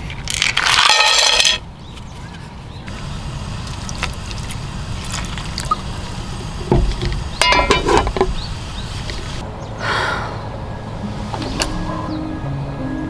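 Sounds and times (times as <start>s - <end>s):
water pouring into a pan: 3.7s - 6.2s
metal lid clattering on pan: 7.4s - 8.3s.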